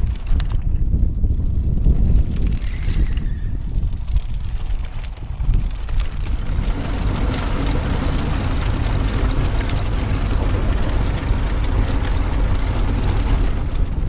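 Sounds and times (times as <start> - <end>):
bicycles rattling over cobblestones: 0.0 - 14.0
wind buffeting microphone: 0.0 - 14.0.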